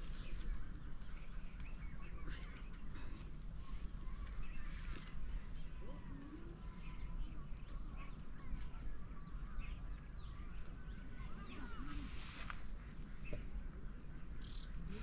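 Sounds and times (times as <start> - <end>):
small birds chirping: 0.0 - 15.0
high insect drone: 9.6 - 15.0.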